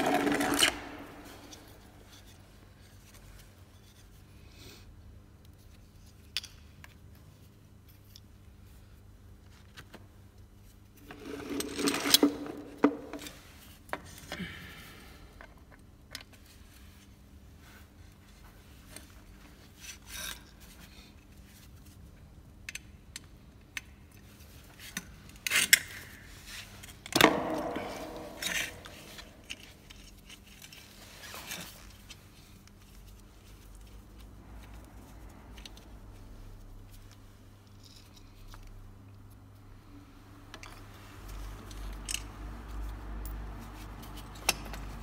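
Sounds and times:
metal parts scraping on floor: 0:00.0 - 0:02.4, 0:11.0 - 0:13.6, 0:26.4 - 0:31.9.

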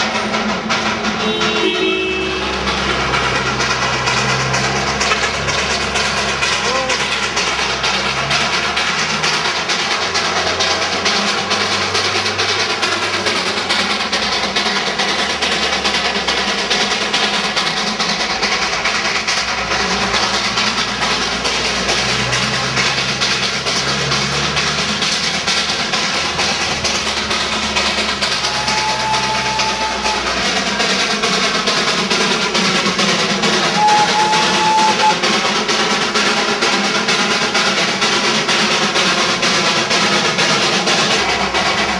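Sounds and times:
steam locomotive exhaust beats: 0:00.0 - 0:41.9
steam whistle: 0:01.2 - 0:03.0, 0:28.2 - 0:31.2, 0:33.6 - 0:35.4.

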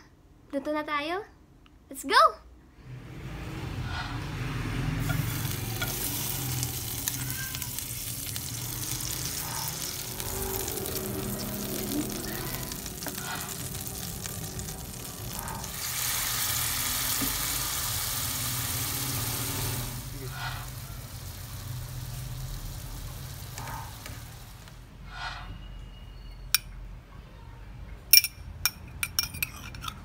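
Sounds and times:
butter sizzling in frying pan: 0:05.0 - 0:24.7.

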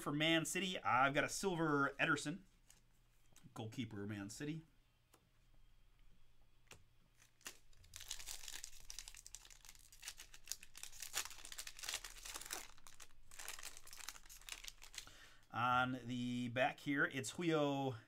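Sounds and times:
plastic wrapper tearing and crinkling: 0:07.1 - 0:15.1.

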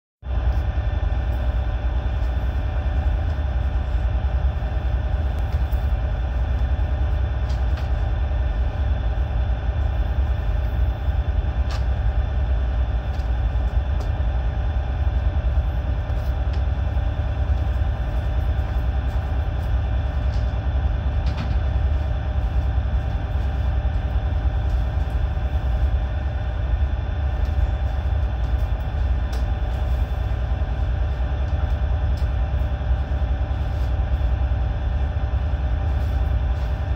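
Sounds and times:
ship machinery rumble and hum: 0:00.2 - 0:36.9.

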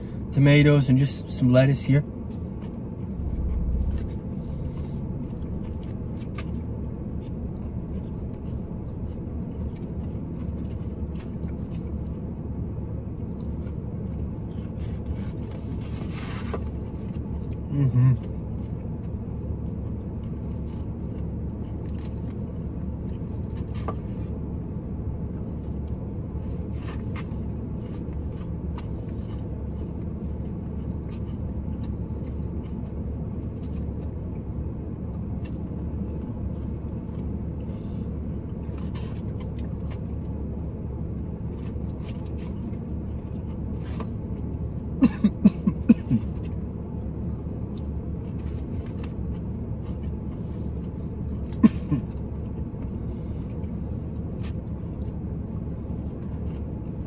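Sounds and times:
car idling: 0:00.0 - 0:57.0
person coughing: 0:45.0 - 0:46.3, 0:51.4 - 0:52.2.

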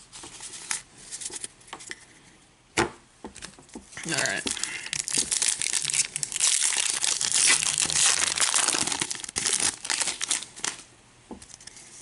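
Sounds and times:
foil wrapper crinkling: 0:04.0 - 0:10.9.

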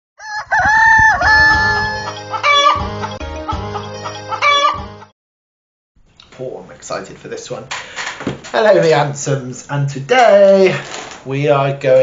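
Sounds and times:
rooster crowing: 0:00.2 - 0:05.0
music with steady beat: 0:01.7 - 0:05.1.

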